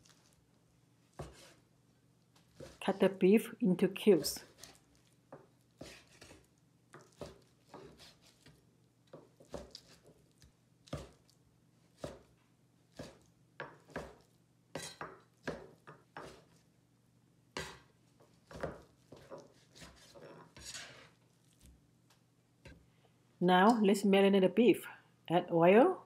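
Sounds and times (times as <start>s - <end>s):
cleaver chopping on cutting board: 14.8s - 16.4s.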